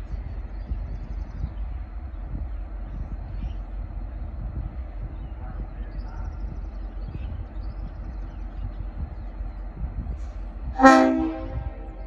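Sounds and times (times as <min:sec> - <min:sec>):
locomotive air horn chord: 0:10.8 - 0:12.0.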